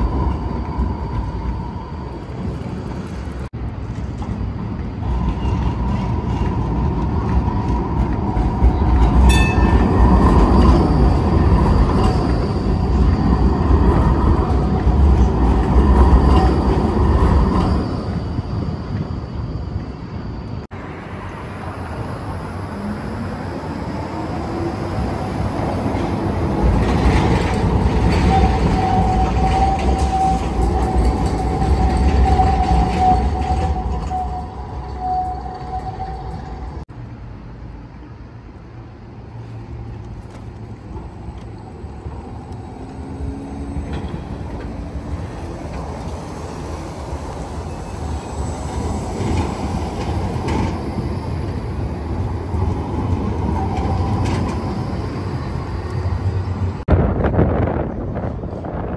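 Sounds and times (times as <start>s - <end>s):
tram approaching: 0.0s - 58.9s
tram high-pitched squeal: 0.0s - 58.9s
tram motor whine: 40.0s - 58.9s.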